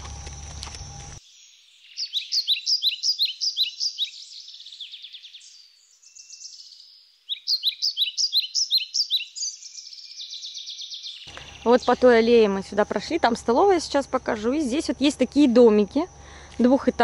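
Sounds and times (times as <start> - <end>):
songbird chirping: 0.1 - 17.0
bird trill: 0.8 - 13.1.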